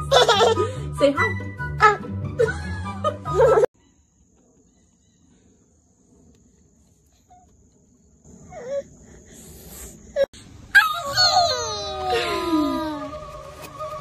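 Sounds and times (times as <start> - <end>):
background music: 0.0 - 3.7
faint high-pitched insect drone: 3.8 - 10.3
child's vocal sound: 11.0 - 13.3.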